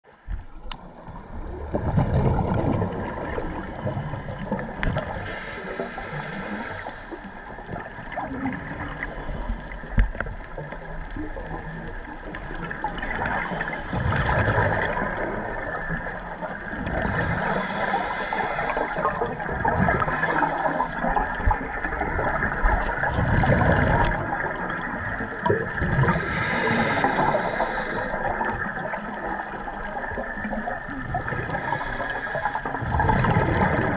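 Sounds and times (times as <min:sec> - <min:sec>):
bubbles gurgling: 0:00.8 - 0:06.1, 0:07.2 - 0:33.9
diver breathing through regulator: 0:03.2 - 0:07.4, 0:13.2 - 0:15.0, 0:16.8 - 0:21.5, 0:26.0 - 0:28.7, 0:31.4 - 0:33.0.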